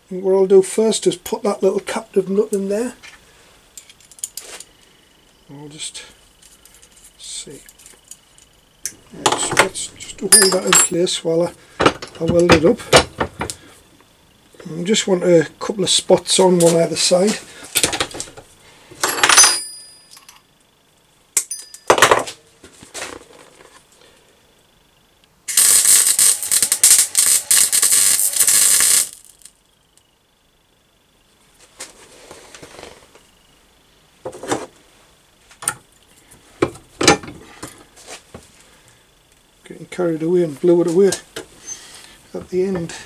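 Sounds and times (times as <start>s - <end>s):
welder crackling: 8.8s - 12.8s, 25.4s - 30.1s.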